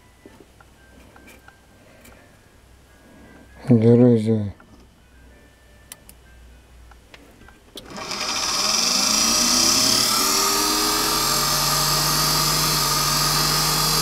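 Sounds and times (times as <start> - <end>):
motor whine rising in pitch: 7.8 - 14.0.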